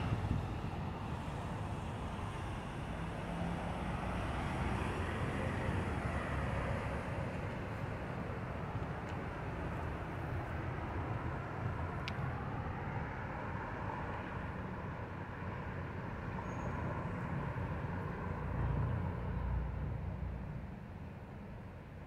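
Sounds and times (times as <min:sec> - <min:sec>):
cars passing: 0:00.0 - 0:21.0.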